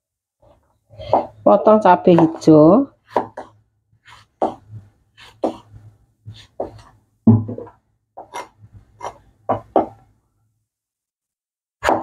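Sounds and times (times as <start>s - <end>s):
cleaver knocking on cutting board: 9.5s - 10.0s.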